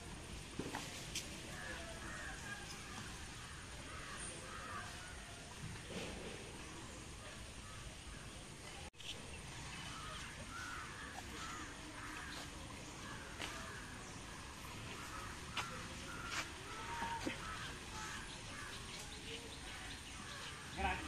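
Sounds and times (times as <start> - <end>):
outdoor background noise: 0.0 - 21.0
crows cawing: 1.6 - 5.3, 10.0 - 12.4, 15.0 - 18.8.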